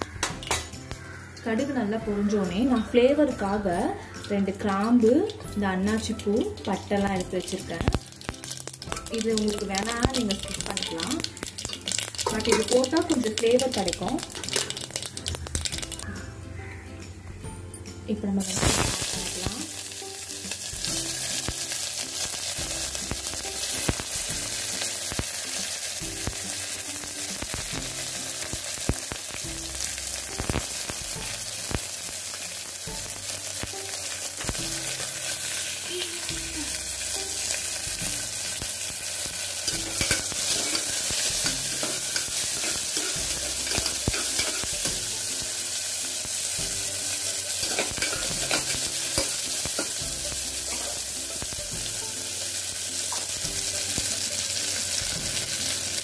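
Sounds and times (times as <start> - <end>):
onions sizzling in oil: 0.0 - 16.8, 18.4 - 56.0.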